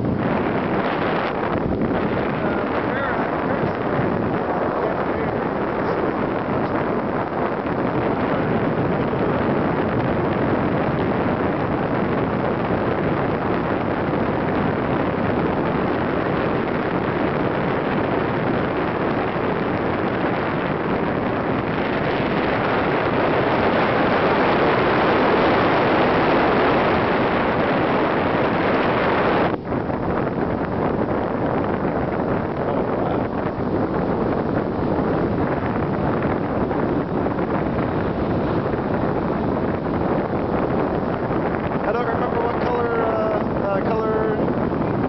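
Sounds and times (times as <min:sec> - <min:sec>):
wind buffeting microphone: 0:00.0 - 0:45.0.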